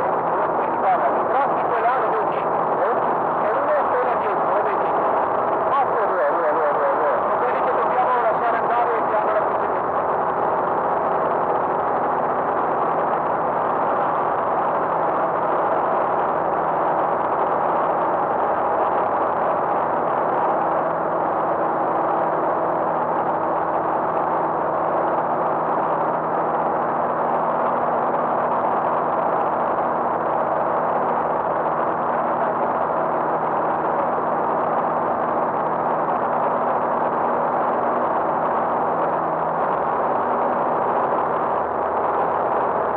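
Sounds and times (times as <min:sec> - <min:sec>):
light aircraft engine drone: 0:00.0 - 0:42.9
low hums: 0:00.0 - 0:42.9.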